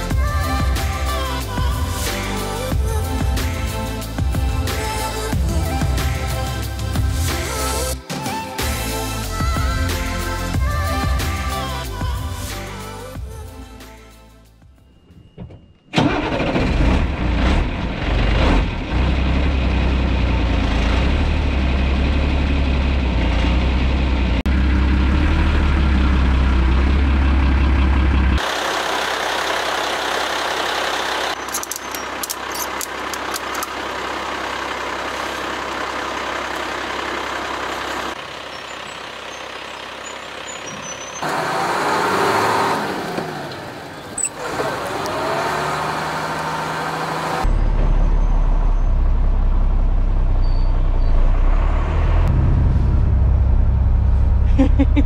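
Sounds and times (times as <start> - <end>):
quieter vehicle noise: 10.6 - 55.0
truck diesel engine running: 16.0 - 55.0.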